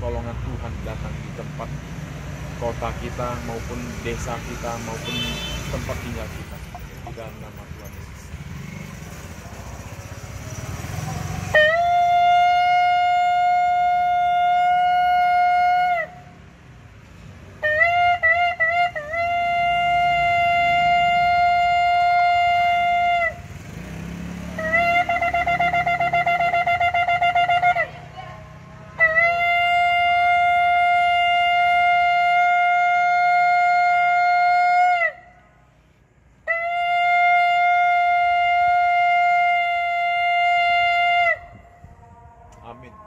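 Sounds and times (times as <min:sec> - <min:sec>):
shofar blasts: 0:11.5 - 0:16.2, 0:17.6 - 0:23.4, 0:24.6 - 0:27.9, 0:29.0 - 0:35.2, 0:36.4 - 0:41.8.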